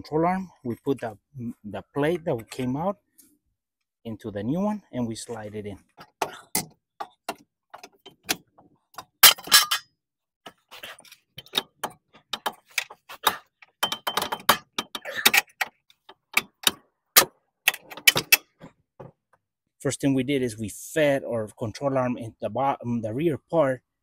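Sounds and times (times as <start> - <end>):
metal clicks and clanks: 6.0 - 9.9, 10.5 - 18.7.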